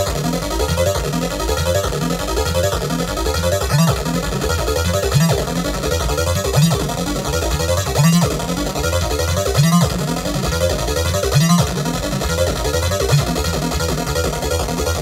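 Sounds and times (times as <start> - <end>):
synthesizer arpeggio: 0.0 - 15.0.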